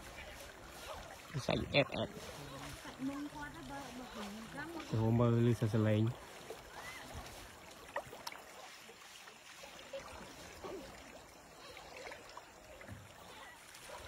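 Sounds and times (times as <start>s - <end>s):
river water lapping and trickling: 0.0s - 14.0s.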